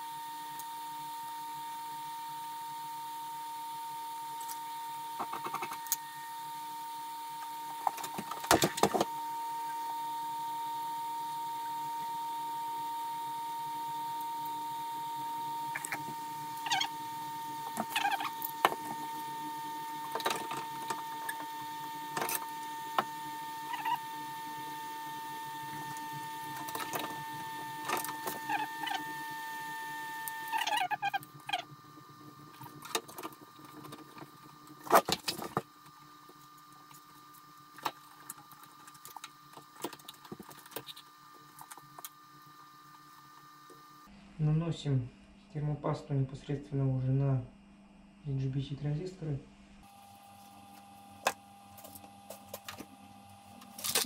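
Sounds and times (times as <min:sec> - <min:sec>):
steady high whine: 0:00.0 - 0:54.0.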